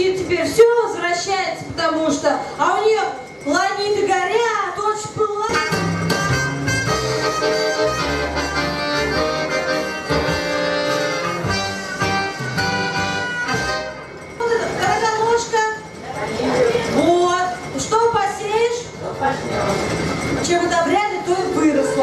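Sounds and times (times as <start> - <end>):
button accordion playing: 5.5 - 14.4.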